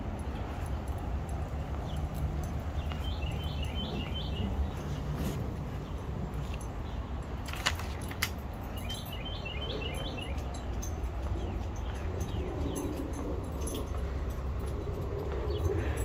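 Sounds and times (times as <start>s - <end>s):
bird chirping: 1.5s - 7.2s, 8.6s - 14.0s.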